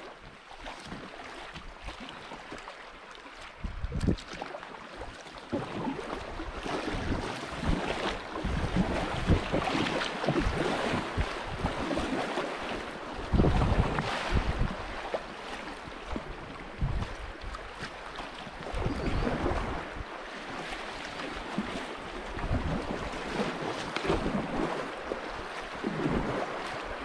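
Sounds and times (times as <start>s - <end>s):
paddle strokes in water: 0.0s - 27.0s
wind buffeting microphone: 3.6s - 4.3s, 6.5s - 12.2s, 13.2s - 15.0s, 15.9s - 17.9s, 18.6s - 20.2s, 22.2s - 27.0s.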